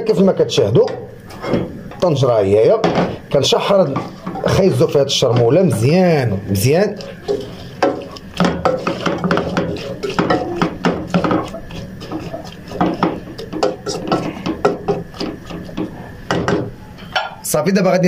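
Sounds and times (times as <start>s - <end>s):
wooden spoon scraping a pot: 3.0s - 17.4s.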